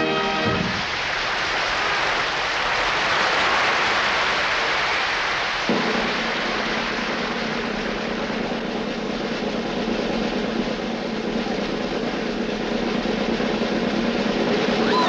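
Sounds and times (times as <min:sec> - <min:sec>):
low steady hum: 0:05.7 - 0:15.0
large crowd noise: 0:05.8 - 0:15.0.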